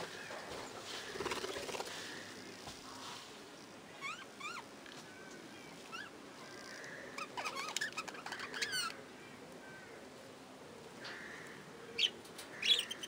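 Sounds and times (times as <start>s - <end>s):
budgerigars chirping: 12.0s - 13.0s.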